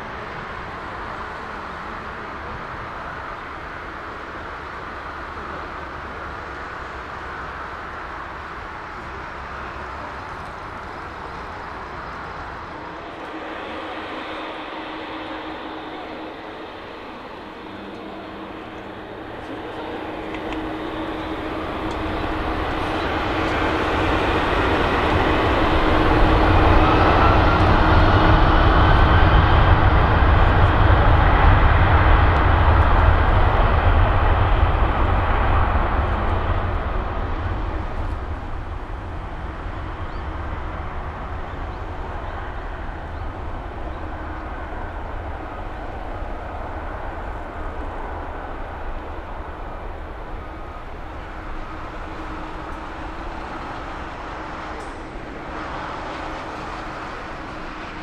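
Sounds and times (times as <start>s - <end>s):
jet airliner engine rumble: 0.0s - 58.0s
steady tone: 11.9s - 41.3s, 42.4s - 58.0s.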